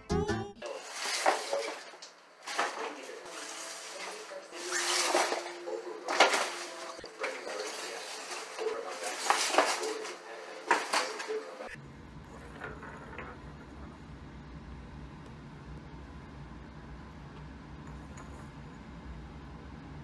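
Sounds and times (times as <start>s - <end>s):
bag crinkling and scraping on floor: 0.6s - 11.4s.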